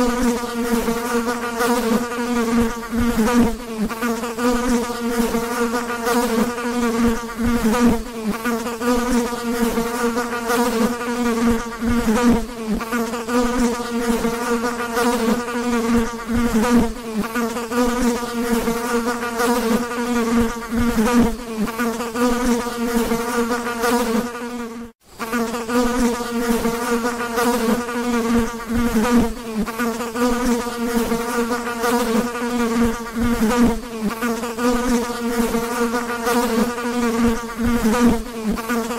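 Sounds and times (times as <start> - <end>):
fly buzzing: 0.0 - 38.9.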